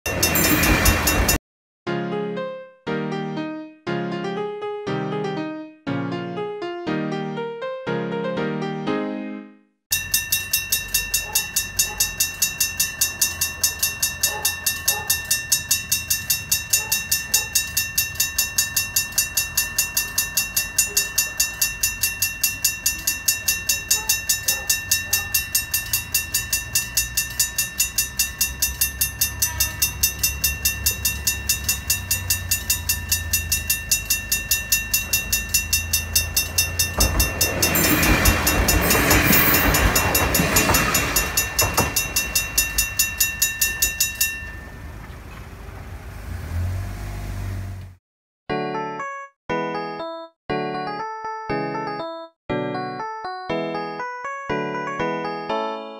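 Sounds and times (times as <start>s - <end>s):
level-crossing alarm bell ringing: 0.0s - 1.4s, 9.9s - 45.0s
diesel train rumbling: 0.1s - 1.4s, 11.2s - 47.9s
train wheel clatter: 0.1s - 1.4s, 10.3s - 45.5s.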